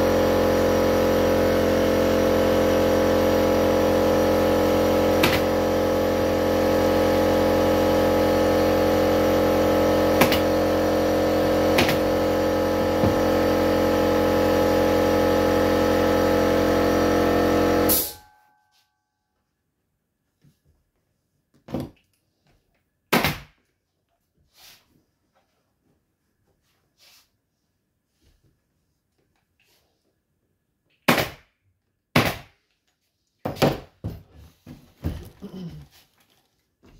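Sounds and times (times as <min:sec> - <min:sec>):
air compressor humming: 0:00.0 - 0:18.3
pneumatic staple gun firing: 0:05.1 - 0:05.6, 0:10.1 - 0:10.6, 0:11.7 - 0:12.1, 0:17.9 - 0:18.2.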